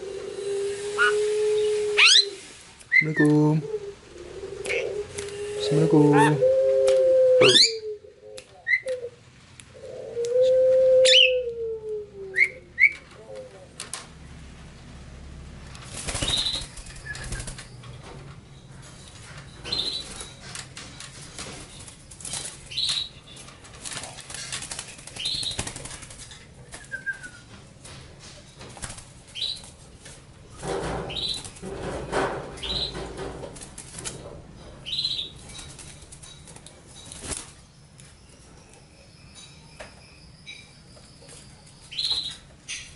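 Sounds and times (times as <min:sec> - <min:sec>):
bird wings flapping in cage: 0:15.7 - 0:17.8, 0:19.7 - 0:27.4, 0:28.6 - 0:34.4, 0:35.5 - 0:37.6.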